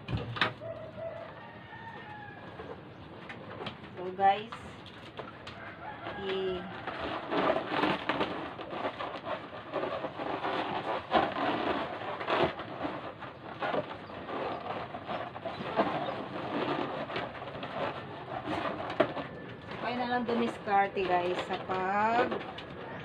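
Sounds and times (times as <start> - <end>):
balloons squeaking and rubbing: 5.8 - 23.0.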